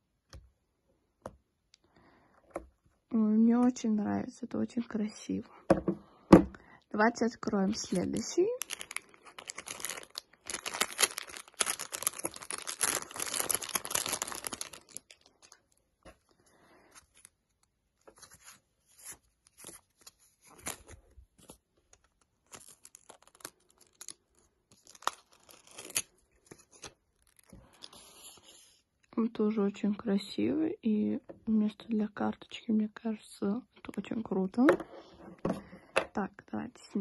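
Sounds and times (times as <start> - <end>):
plastic bag tearing and crinkling: 7.9 - 15.6, 22.4 - 27.9
plastic phone case rustling: 7.9 - 16.3.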